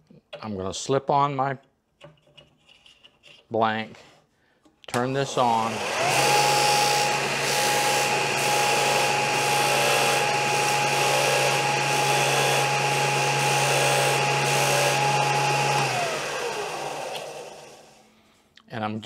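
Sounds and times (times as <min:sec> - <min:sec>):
disc sander whining: 0:05.0 - 0:18.0
wood sanding: 0:05.4 - 0:18.0.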